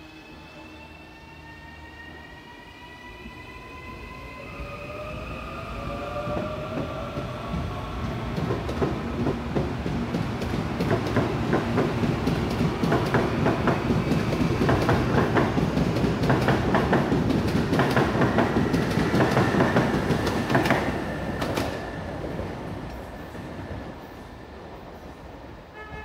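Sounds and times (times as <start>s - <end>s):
train wheels clicking over rail joints: 8.4s - 21.8s.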